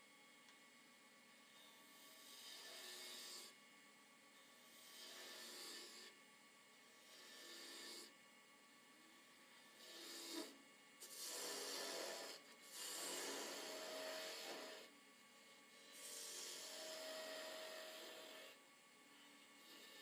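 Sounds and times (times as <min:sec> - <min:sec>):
wood lathe tool rasping: 0:01.6 - 0:03.6, 0:04.6 - 0:06.1, 0:07.0 - 0:08.1, 0:09.6 - 0:18.6, 0:19.2 - 0:20.0.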